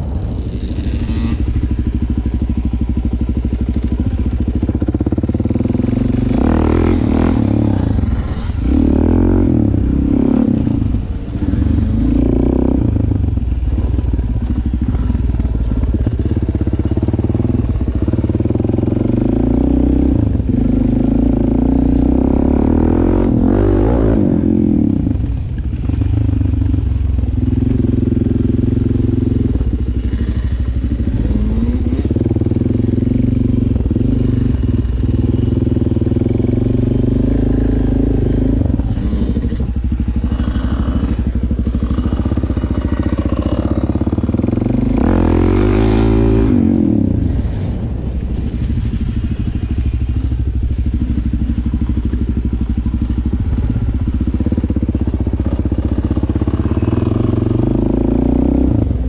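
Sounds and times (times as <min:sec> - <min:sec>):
dirt bike engine revving: 0:00.0 - 0:02.1, 0:03.7 - 0:25.5, 0:27.3 - 0:50.4.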